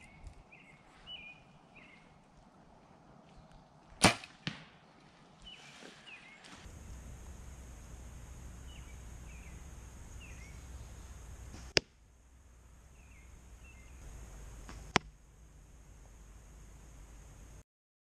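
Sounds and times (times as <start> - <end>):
bird chirps: 0.0 - 2.2, 5.4 - 11.8, 12.8 - 14.6
arrows striking foam targets: 11.5 - 12.0.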